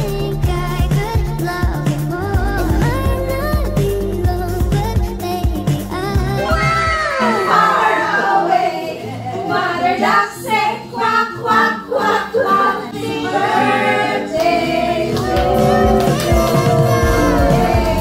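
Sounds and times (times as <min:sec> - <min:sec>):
group singing unaccompanied: 0:06.0 - 0:18.0.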